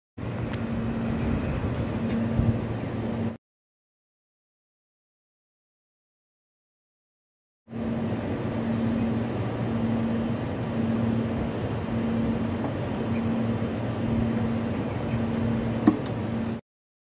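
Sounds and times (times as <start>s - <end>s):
air conditioner unit humming: 0.2s - 3.4s, 7.7s - 16.6s.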